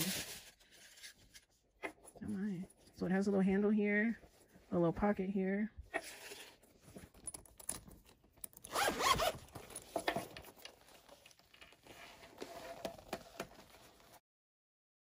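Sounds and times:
case handling: 6.8 - 14.2
zipper pulled open: 8.6 - 9.9.

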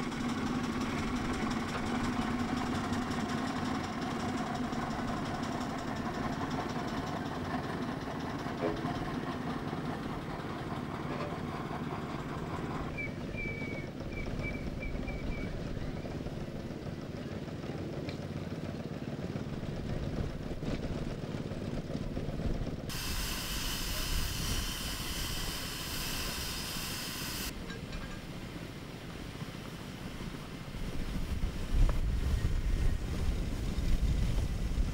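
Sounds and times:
steam engines rumbling: 0.0 - 34.9
steam hissing: 22.9 - 27.6.

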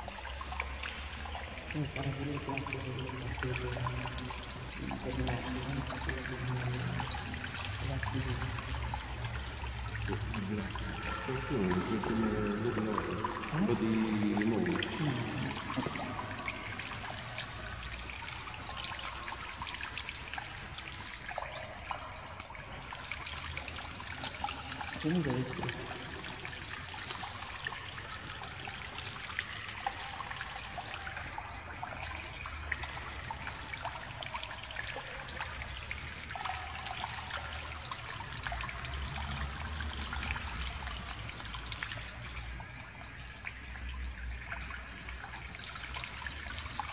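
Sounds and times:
water trickling into pool: 0.0 - 46.9
person's voice: 10.1 - 16.2, 25.0 - 26.0.

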